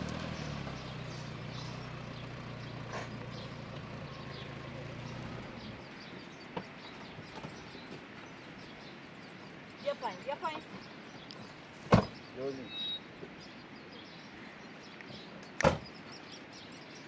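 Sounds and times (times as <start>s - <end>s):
engine running: 0.0s - 9.6s
birds chirping: 0.0s - 17.0s
sharp click: 15.4s - 15.9s.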